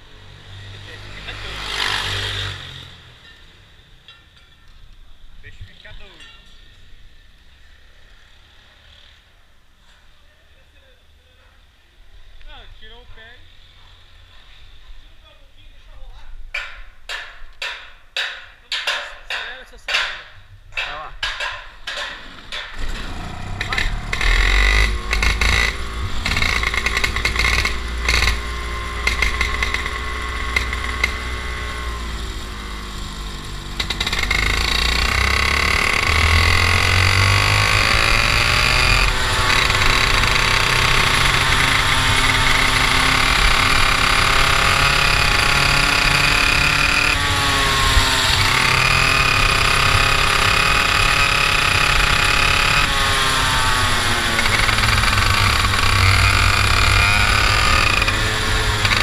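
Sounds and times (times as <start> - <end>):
kart engine revving: 0.0 - 3.2, 22.2 - 59.0.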